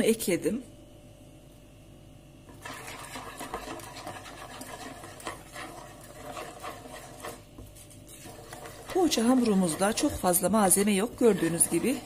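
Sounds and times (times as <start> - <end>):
wire whisk beating batter in bowl: 2.5 - 12.0.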